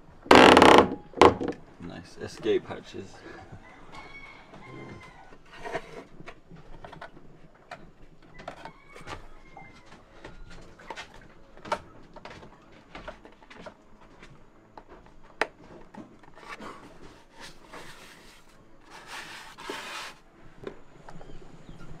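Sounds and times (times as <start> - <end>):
scrape: 5.4 - 6.1, 16.4 - 20.2.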